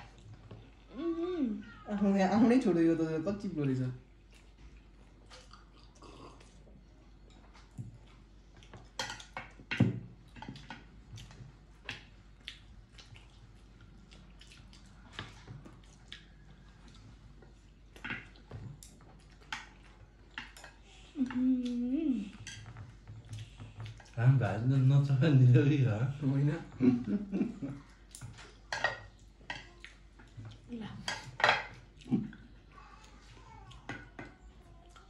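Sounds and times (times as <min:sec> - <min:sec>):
wet chewing: 0:04.1 - 0:09.6, 0:10.3 - 0:20.8, 0:21.6 - 0:24.3.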